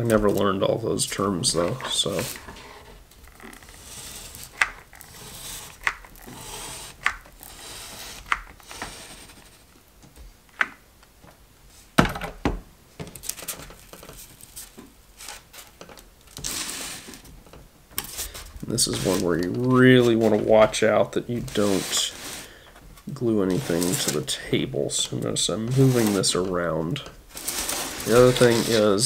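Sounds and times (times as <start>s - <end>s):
soft hiss: 0.0s - 12.0s.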